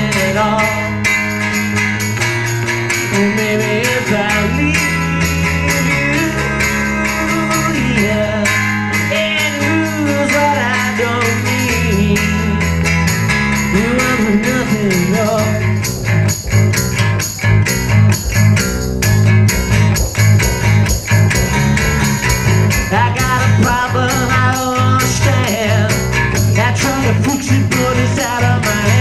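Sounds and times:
electric bass: 0.0s - 29.0s
strummed acoustic guitar: 0.0s - 29.0s
pitch-bending melody line: 13.6s - 24.8s.

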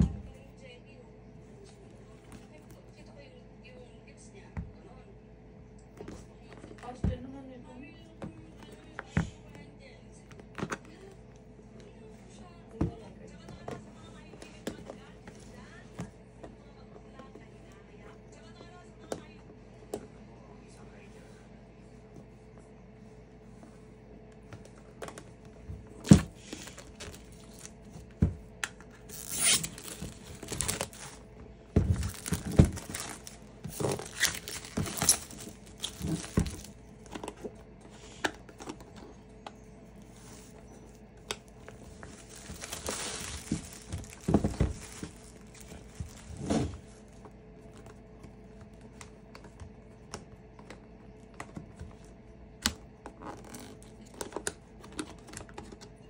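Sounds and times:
plastic wrap tearing and crinkling: 29.0s - 31.2s, 31.9s - 36.8s, 41.6s - 46.5s.

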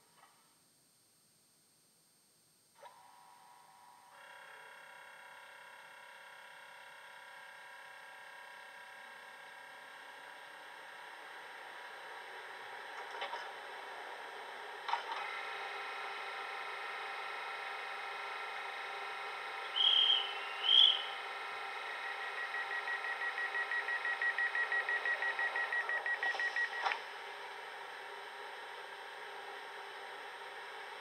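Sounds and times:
steady electrical hum: 0.0s - 14.9s, 15.5s - 31.0s
high toots: 19.7s - 21.2s.

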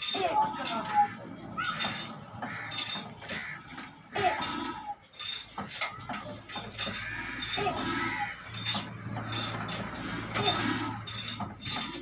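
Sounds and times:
men calling out: 0.0s - 5.1s, 6.8s - 11.9s
diesel engine clinks and knocks: 0.0s - 12.0s.

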